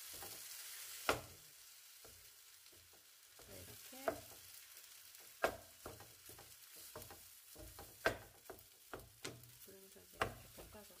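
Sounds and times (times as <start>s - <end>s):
faint sizzle: 0.0s - 11.0s
wooden spatula knocking on wok: 1.0s - 1.3s, 2.0s - 4.5s, 5.2s - 11.0s.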